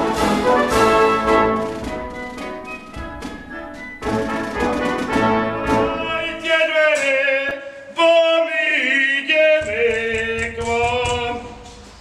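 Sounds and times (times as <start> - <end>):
man singing long held notes: 5.9 - 11.7.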